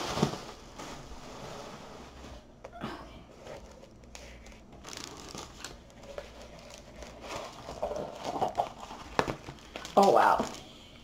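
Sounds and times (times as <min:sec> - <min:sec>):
plastic packaging crinkling: 0:03.5 - 0:10.7.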